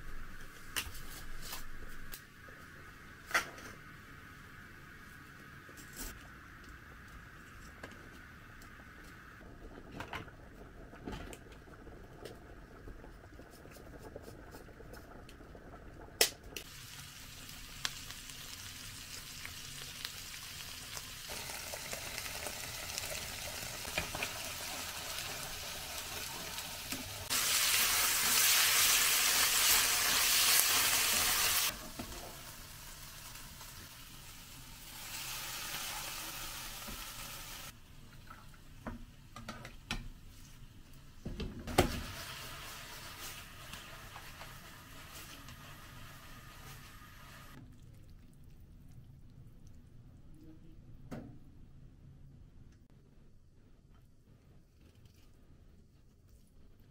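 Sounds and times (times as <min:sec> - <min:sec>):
vegetables sizzling in frying pan: 0:16.6 - 0:37.8, 0:41.8 - 0:47.6.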